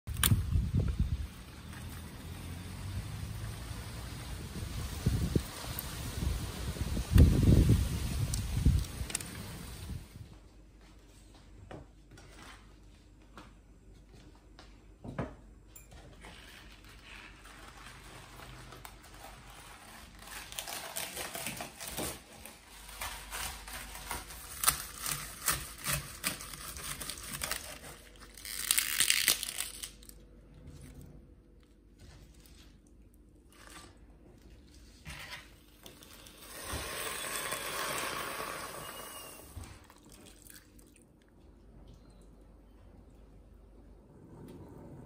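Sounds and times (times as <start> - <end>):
cabbage leaves crinkling and tearing: 16.4 - 31.0
water pouring into saucepan: 36.3 - 40.8.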